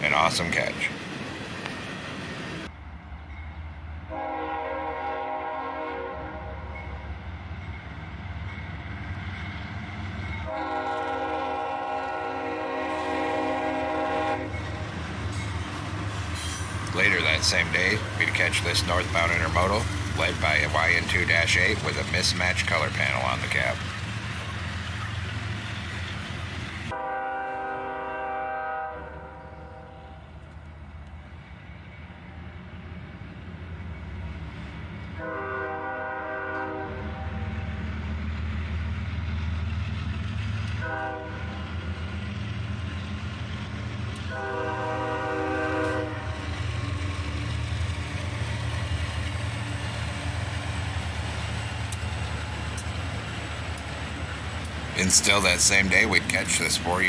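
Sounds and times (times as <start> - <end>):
train rumbling: 0.0 - 57.0
locomotive air horn: 4.1 - 6.8, 10.4 - 14.6, 26.9 - 30.3, 35.2 - 37.5, 40.8 - 41.7, 44.2 - 46.4.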